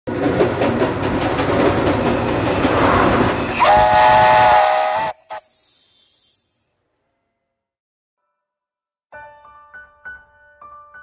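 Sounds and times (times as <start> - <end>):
locomotive hissing steam: 2.0 - 6.0
steam whistle chord: 3.5 - 5.4.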